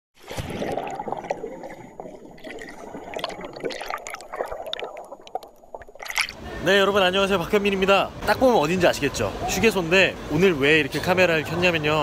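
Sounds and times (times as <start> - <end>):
water drips and splashes: 0.2 - 6.4
water gurgling and sloshing: 0.2 - 7.9.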